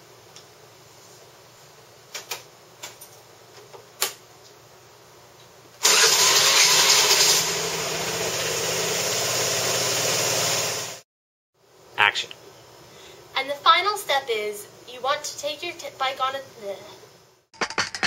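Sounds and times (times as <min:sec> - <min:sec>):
scooter engine starting and idling: 0:05.8 - 0:11.0.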